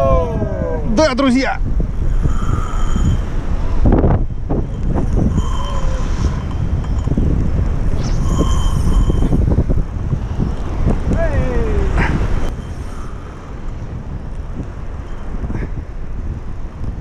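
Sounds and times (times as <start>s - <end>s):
wind buffeting microphone: 0.0s - 17.0s
high whine: 1.6s - 17.0s.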